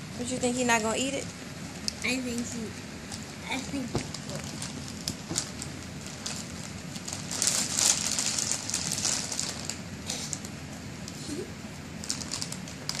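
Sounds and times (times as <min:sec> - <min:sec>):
foil chip bag crinkling: 0:03.8 - 0:10.5, 0:12.0 - 0:13.0.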